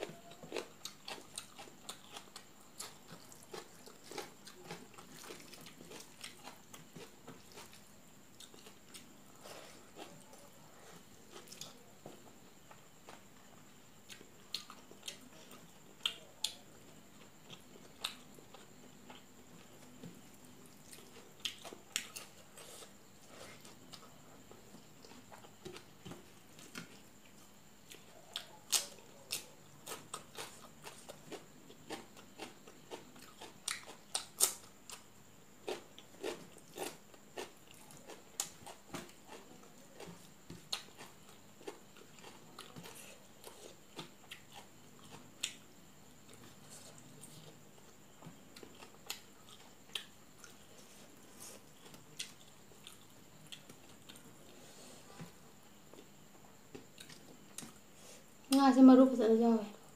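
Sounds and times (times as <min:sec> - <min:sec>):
wet chewing: 0:00.1 - 0:11.9, 0:46.2 - 0:57.8.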